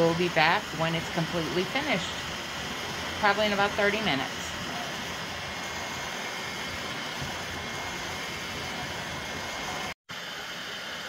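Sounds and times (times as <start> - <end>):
three-d printer whirring: 0.0 - 10.0.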